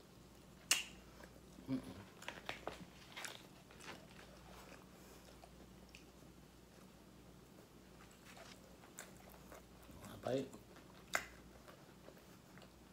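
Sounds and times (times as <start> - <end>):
chewing clicks: 8.9 - 12.8.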